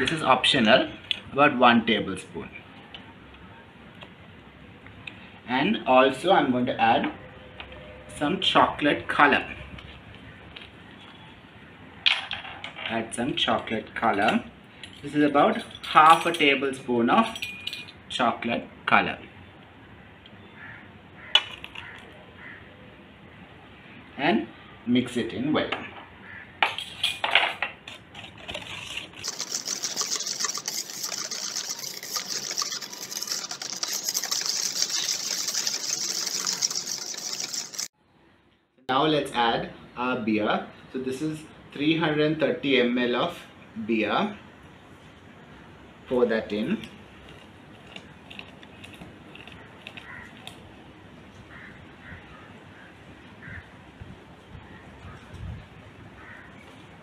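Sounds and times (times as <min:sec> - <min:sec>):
batter being whisked: 0:28.0 - 0:37.9, 0:46.8 - 0:50.6
whisk clinking on steel bowl: 0:29.2 - 0:37.9.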